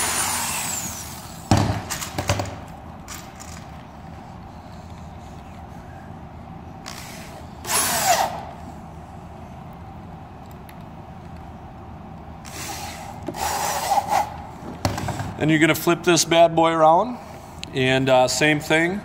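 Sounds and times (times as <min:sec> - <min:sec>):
drill driving screw into wood: 0:00.0 - 0:02.1, 0:06.8 - 0:08.4, 0:12.4 - 0:14.3.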